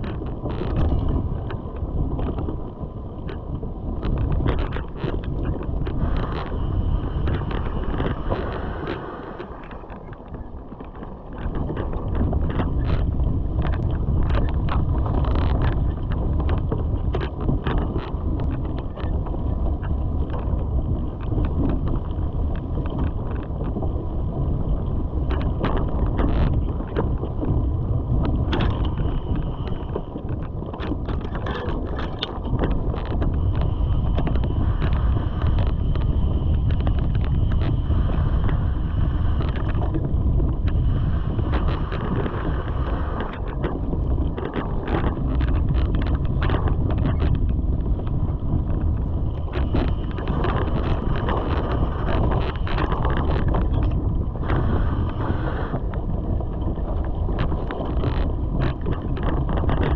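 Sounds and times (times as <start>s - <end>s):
bike rattling over bumps: 0.0s - 8.9s, 9.8s - 59.9s
bike tyres rumbling on dirt: 0.0s - 59.9s
wind buffeting microphone: 0.0s - 59.9s.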